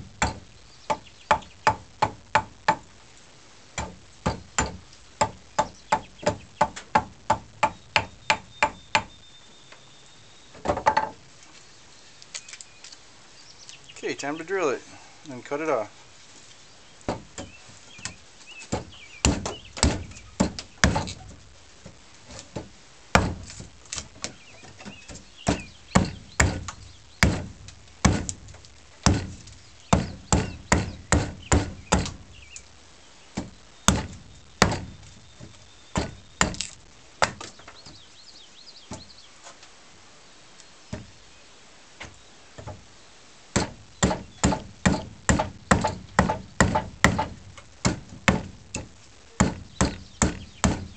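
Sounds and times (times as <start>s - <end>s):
hatchet chopping wood: 0.0s - 2.9s, 3.8s - 9.1s, 17.1s - 21.2s, 22.6s - 23.7s, 24.8s - 32.3s, 33.4s - 35.1s, 35.9s - 37.5s, 43.5s - 50.9s.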